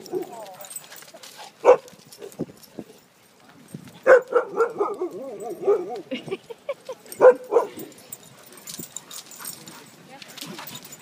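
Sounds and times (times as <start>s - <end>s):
dog barking: 1.6s - 1.9s, 4.0s - 6.0s, 7.2s - 7.8s.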